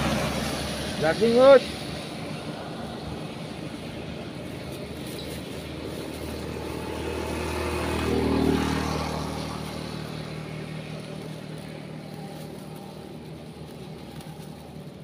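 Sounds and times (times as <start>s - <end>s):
motor scooter passing: 0.0s - 15.0s.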